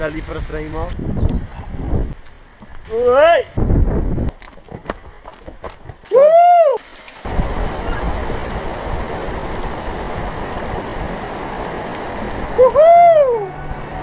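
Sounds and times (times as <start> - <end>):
mountain stream over cascades: 6.0 - 14.0
person shouting: 6.1 - 6.8, 12.6 - 13.6.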